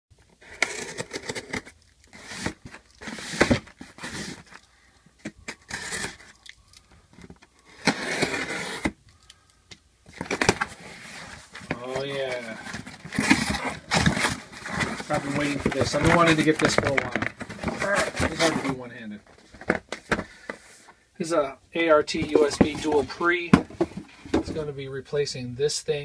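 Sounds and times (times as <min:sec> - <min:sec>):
cardboard scraping and rustling: 0:00.3 - 0:04.6, 0:05.2 - 0:06.4, 0:07.2 - 0:09.0, 0:10.1 - 0:20.9, 0:22.0 - 0:24.7
packing tape being slit and pulled: 0:00.4 - 0:06.5, 0:07.6 - 0:09.0.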